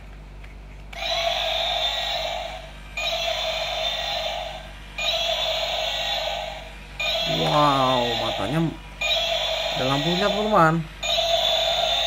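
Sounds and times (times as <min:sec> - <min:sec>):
toy dinosaur electronic sound effect: 0:01.0 - 0:12.0.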